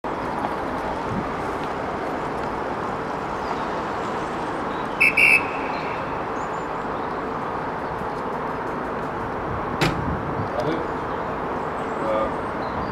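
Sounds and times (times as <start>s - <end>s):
rushing outdoor noise: 0.0s - 12.9s
referee whistle blasts: 5.0s - 5.8s.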